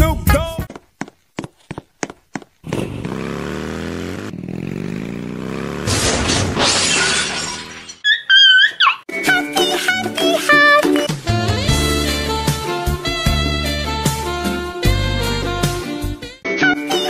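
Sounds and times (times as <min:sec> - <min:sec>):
cartoon motorcycle engine: 0:02.6 - 0:08.8
crash with shattering: 0:05.9 - 0:08.0.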